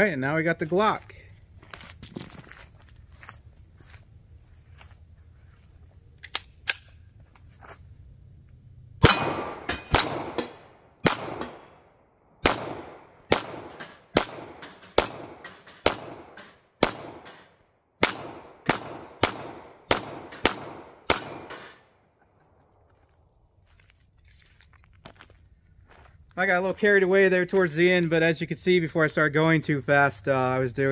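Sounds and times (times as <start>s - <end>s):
steel targets ringing: 9.0s - 11.6s
pistol shots: 9.0s - 11.8s, 12.4s - 17.4s, 18.0s - 21.8s.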